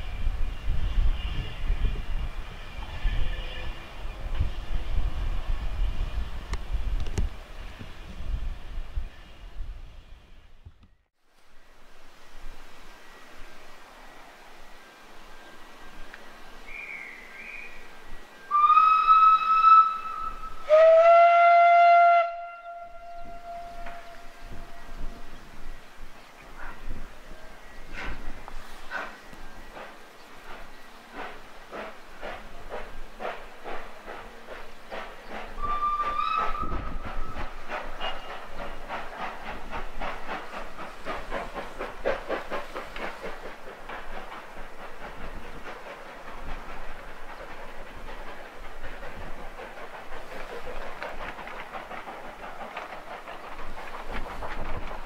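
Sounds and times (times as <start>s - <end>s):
high-pitched steam whistle: 0.0s - 5.0s, 15.8s - 25.2s, 35.6s - 39.3s
steam locomotive exhaust beats: 15.7s - 25.9s, 26.6s - 55.0s
low-pitched steam whistle: 15.8s - 25.5s, 35.6s - 39.3s.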